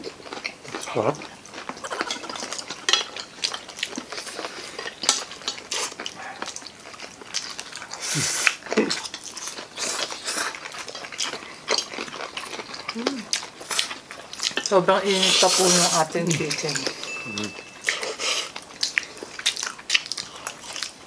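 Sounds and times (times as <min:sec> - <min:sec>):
people chewing: 0:00.0 - 0:21.0
forks clinking on plates: 0:02.0 - 0:03.6, 0:16.5 - 0:18.4.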